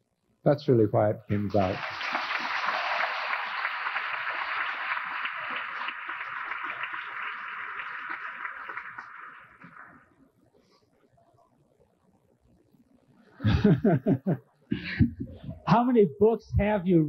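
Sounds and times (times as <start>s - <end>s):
audience applauding: 1.6s - 10.1s.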